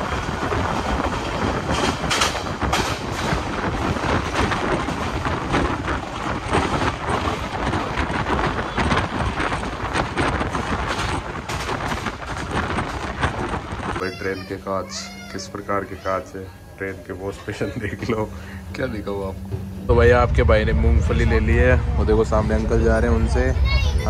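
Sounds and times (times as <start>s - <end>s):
train clattering knocks: 0.0s - 14.2s, 17.7s - 21.1s
train wheels rumbling: 0.0s - 24.0s.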